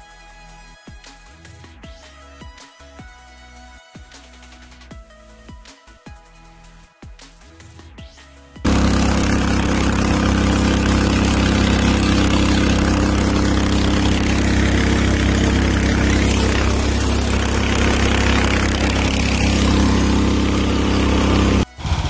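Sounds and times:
lawn tractor engine running: 8.7s - 22.0s.

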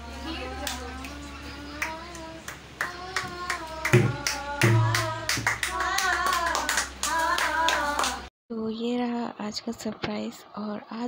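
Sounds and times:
voices singing together: 0.0s - 8.3s
rhythmic hand clapping: 0.5s - 8.3s.

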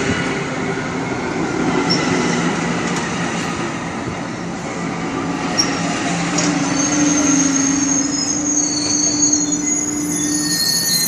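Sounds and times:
train coaches rolling: 0.0s - 11.0s
high-pitched wheel squeals: 5.6s - 11.0s.

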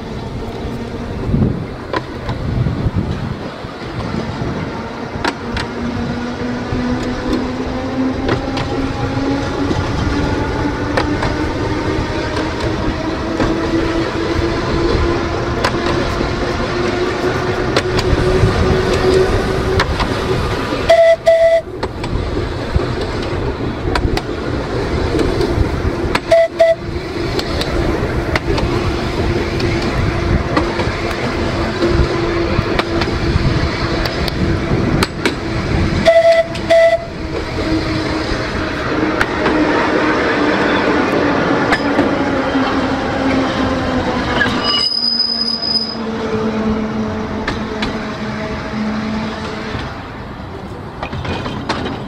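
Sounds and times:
tram motors whining: 0.0s - 52.0s
tram wheels rumbling: 0.0s - 52.0s
tram warning horn toots: 0.1s - 21.9s, 25.0s - 50.8s.

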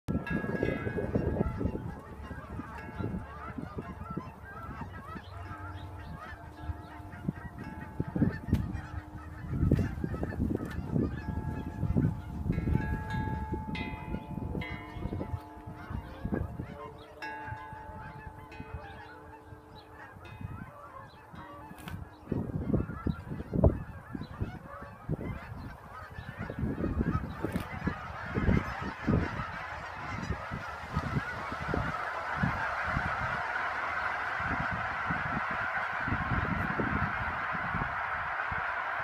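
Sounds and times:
geese honking: 0.1s - 39.0s
wind buffeting microphone: 0.1s - 39.0s.

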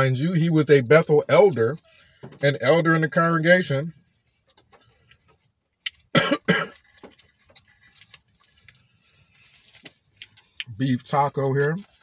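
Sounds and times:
man coughing: 6.2s - 6.8s
foil wrapper crinkling: 6.7s - 12.0s.

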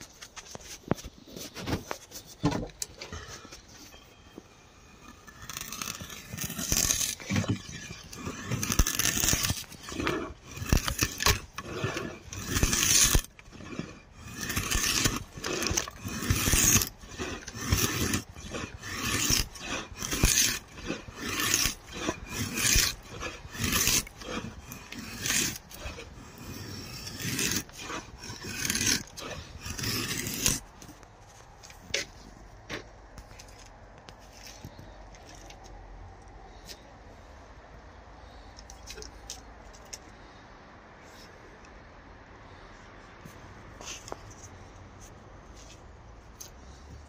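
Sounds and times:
draw knife shaving wood: 0.0s - 32.3s.

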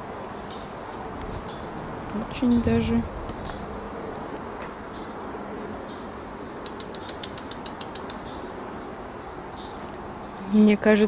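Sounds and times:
sharp high clicks: 6.6s - 8.3s.

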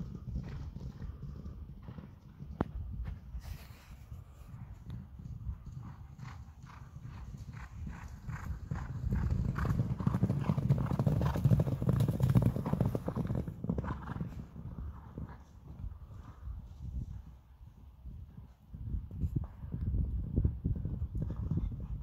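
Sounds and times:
horses galloping on grass: 0.0s - 22.0s.

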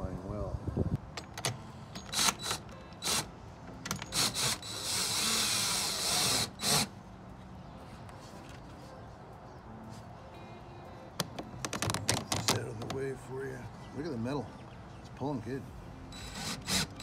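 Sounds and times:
cordless drill bursts: 4.1s - 6.9s, 16.1s - 17.0s.

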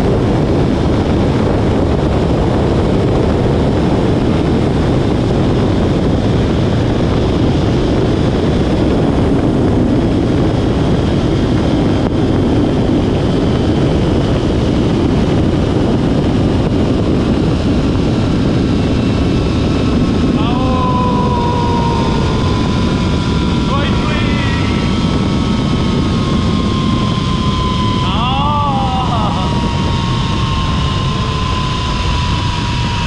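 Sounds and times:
wind rushing over microphone: 0.0s - 33.0s
high whine of pulleys on cable: 19.5s - 33.0s.

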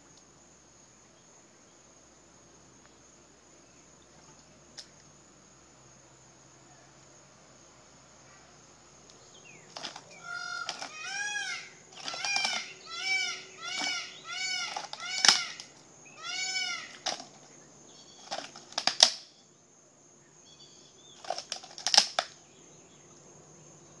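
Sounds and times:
jaws crunching shell: 9.7s - 11.0s, 12.0s - 12.7s, 14.6s - 15.7s, 16.9s - 17.4s, 18.2s - 19.2s, 21.2s - 22.3s
shell cracking: 9.7s - 11.1s, 12.0s - 12.8s, 13.7s - 15.8s, 16.9s - 17.5s, 18.2s - 19.3s, 21.2s - 22.4s
animal calls rising and falling: 9.8s - 17.4s.

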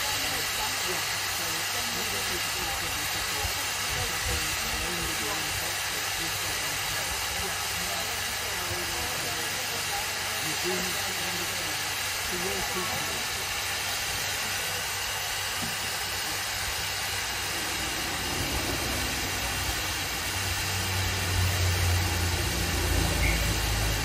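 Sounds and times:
steam hissing: 0.0s - 24.0s
low rumble: 17.1s - 23.8s.

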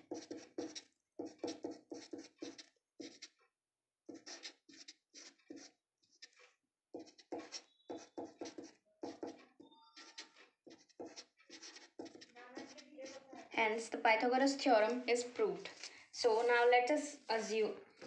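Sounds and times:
marker pen writing on paper: 0.0s - 3.4s, 4.1s - 13.6s, 14.9s - 18.0s.

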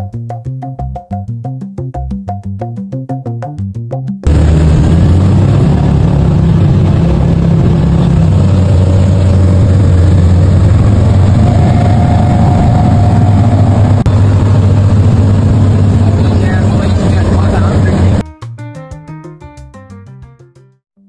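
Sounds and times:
outboard motors droning: 4.3s - 18.2s.

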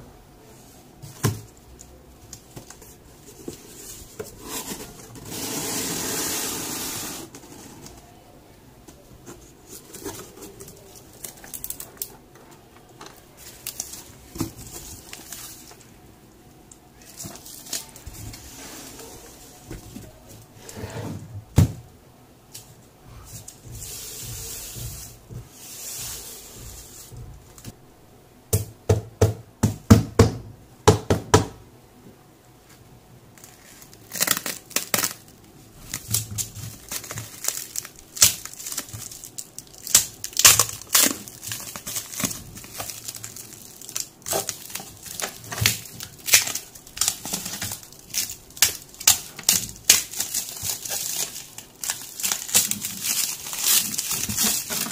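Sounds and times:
plastic wrap crinkling and tearing: 9.7s - 12.2s, 13.1s - 16.0s, 17.0s - 20.2s, 33.4s - 54.9s.

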